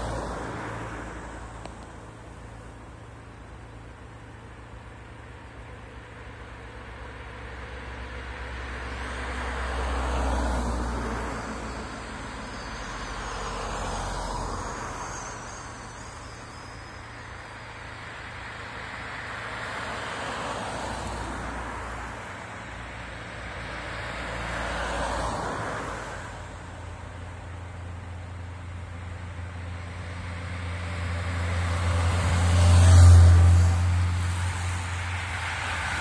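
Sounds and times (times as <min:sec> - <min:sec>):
cars driving past on asphalt: 0:00.0 - 0:36.0.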